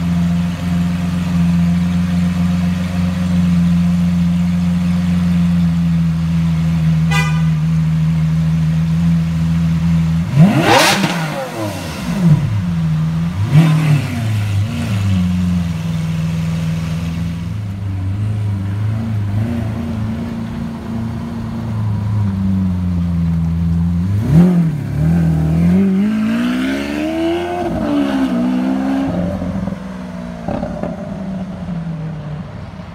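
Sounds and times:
car engine idling: 0.0s - 25.9s
car engine revving: 3.8s - 32.5s.

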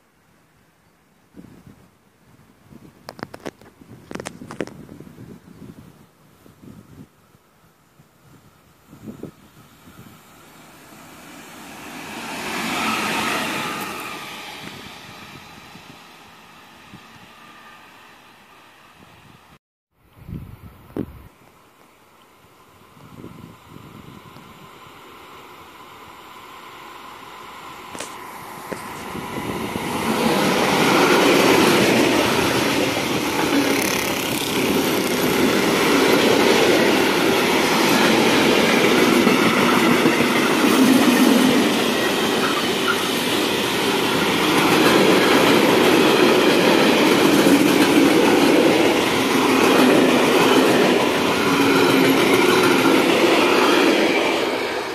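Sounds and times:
freight train passing: 8.6s - 19.6s, 22.4s - 54.9s.

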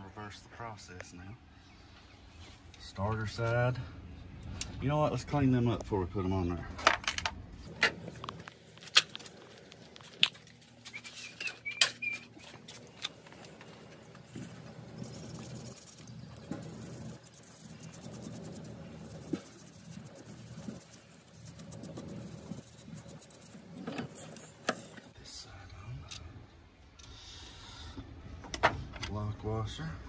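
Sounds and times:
rubbing and scraping metal terminals: 8.3s - 25.1s.

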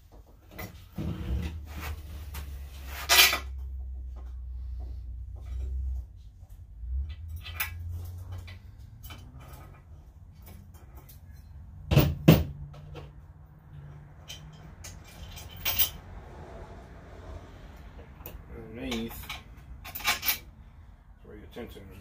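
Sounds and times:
clicks and clinks of parts: 5.4s - 16.0s, 18.2s - 20.5s.

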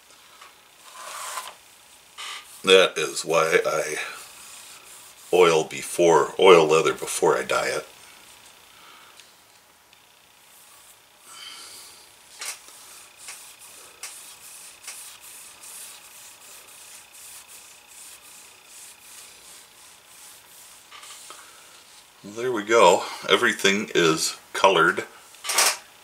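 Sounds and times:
dauber scrubbing leather: 2.5s - 6.1s, 12.7s - 22.2s.

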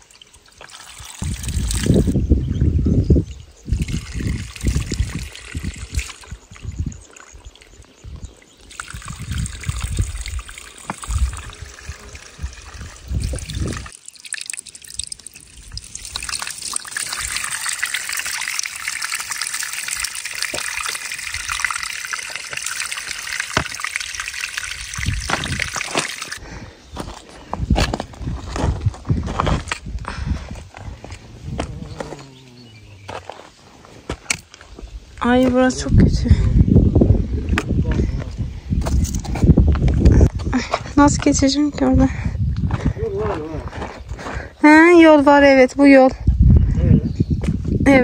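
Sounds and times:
water trickling into hands: 0.0s - 2.2s, 3.2s - 26.5s
low rumbling: 27.7s - 33.6s.

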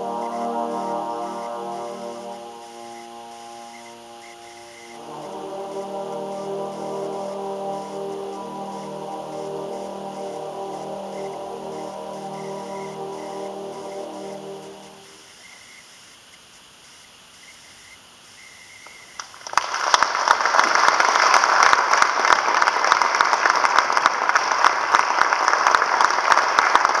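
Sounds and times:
trombone ensemble chord: 0.0s - 15.2s
audience applauding: 19.2s - 27.0s.

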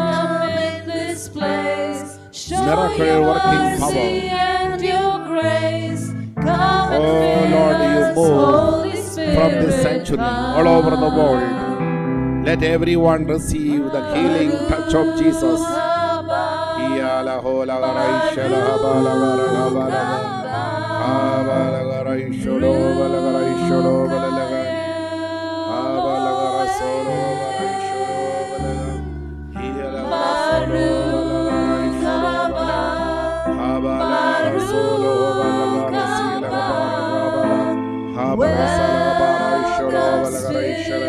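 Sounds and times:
voices singing slow melody: 0.0s - 41.0s
sustained bass notes: 2.5s - 5.0s, 6.1s - 15.9s.

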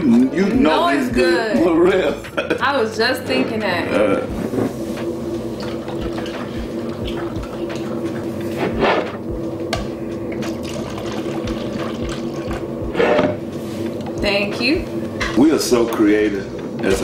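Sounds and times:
liquid pouring into cups: 5.5s - 8.5s, 10.3s - 12.8s.

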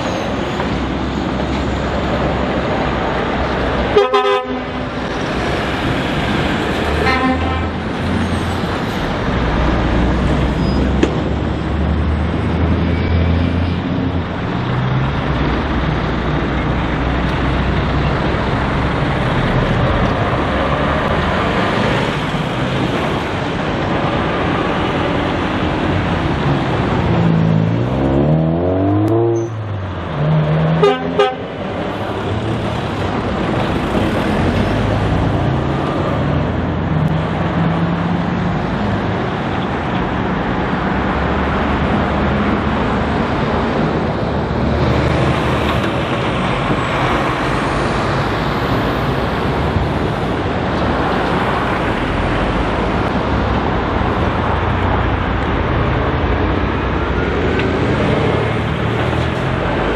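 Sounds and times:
tyre and traffic noise: 0.0s - 59.9s
horn toots: 3.9s - 4.8s, 7.0s - 7.8s, 30.6s - 31.5s.

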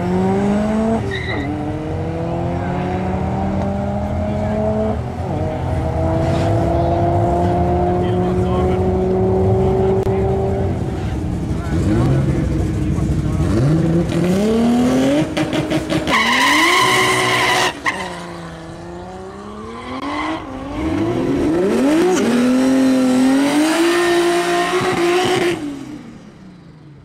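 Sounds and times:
tyres squealing: 16.1s - 18.4s.

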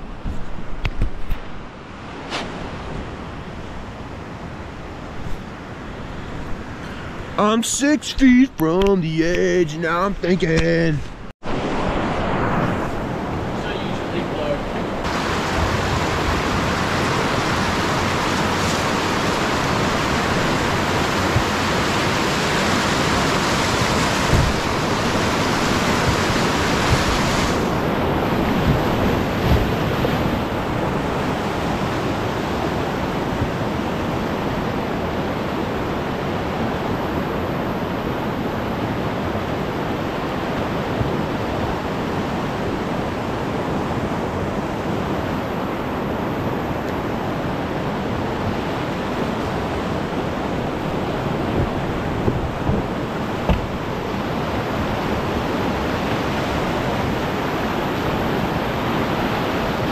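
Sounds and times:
whitewater rapids rushing: 6.8s - 59.9s
short knocks: 52.6s - 53.8s.

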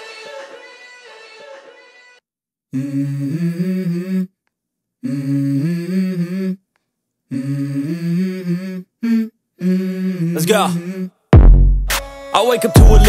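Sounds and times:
wordless hummed vocal: 2.7s - 4.4s, 5.0s - 6.6s, 7.3s - 11.2s.

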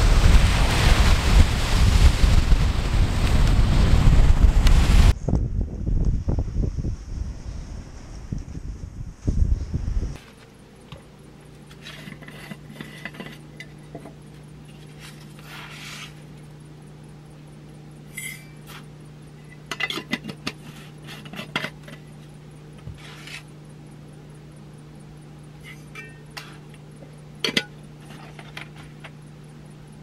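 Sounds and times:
steady low hum: 0.0s - 30.0s
glass jars and lids clinking: 19.7s - 20.6s, 25.6s - 26.3s, 27.4s - 28.6s.

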